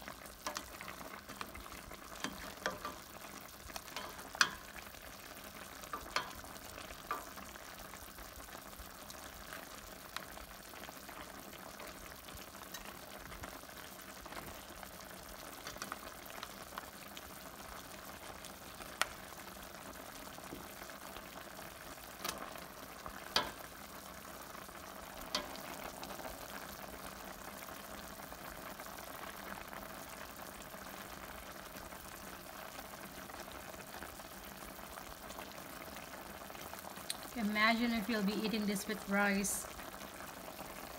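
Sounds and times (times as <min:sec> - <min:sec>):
stew bubbling and sizzling: 0:00.0 - 0:40.9
spoon clinking against pot: 0:04.0 - 0:04.7.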